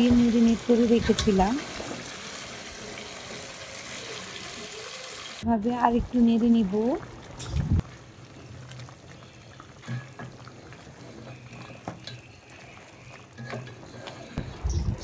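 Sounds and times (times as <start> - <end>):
gravy bubbling in a pan: 6.4 - 14.6.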